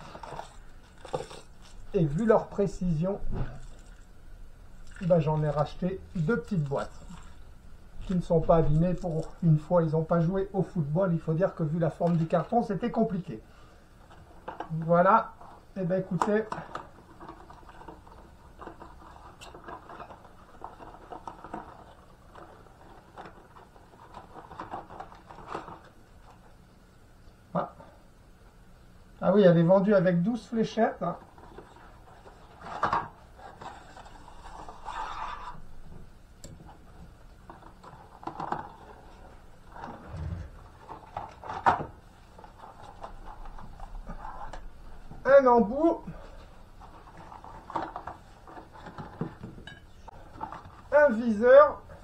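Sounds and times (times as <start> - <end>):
cardboard scraping on table: 31.4 - 35.6, 37.9 - 41.8.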